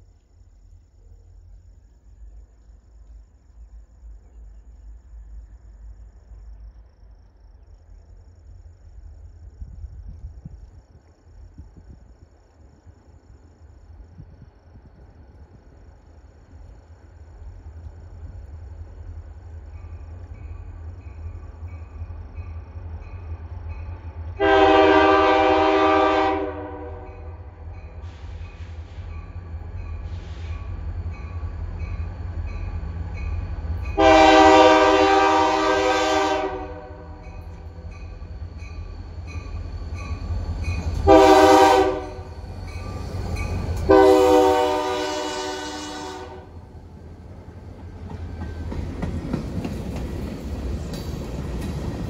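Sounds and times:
diesel locomotive engines rumbling: 0.6s - 52.0s
train air horn blasts: 24.4s - 29.2s, 34.0s - 37.4s, 41.0s - 42.3s, 43.9s - 46.6s.

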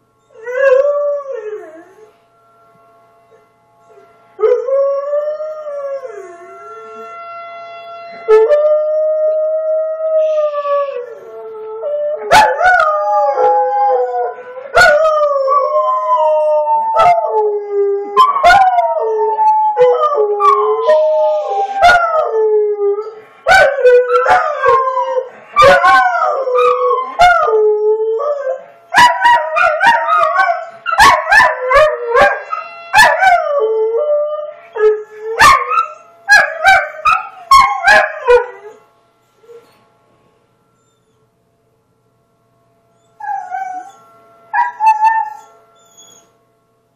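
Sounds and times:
tornado siren: 4.0s - 38.8s
dogs howling: 8.2s - 38.8s, 43.2s - 44.0s, 44.6s - 46.3s.

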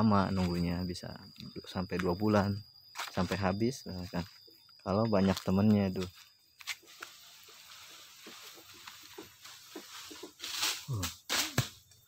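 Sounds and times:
footsteps in dry leaves: 5.2s - 11.0s.

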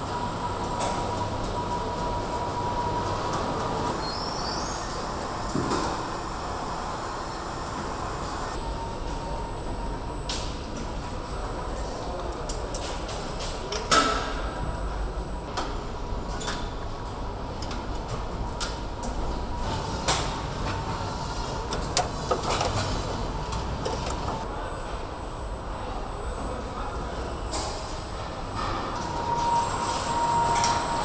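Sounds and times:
machinery hum: 0.0s - 31.0s
faint high whine: 3.9s - 15.5s, 24.1s - 31.0s.

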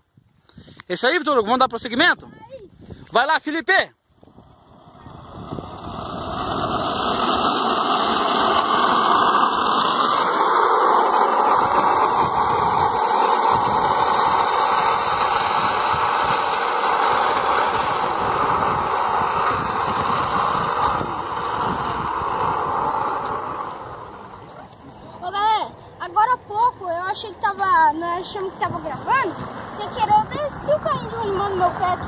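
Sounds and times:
cart wheels rumbling on asphalt: 4.4s - 24.9s, 27.1s - 32.0s.

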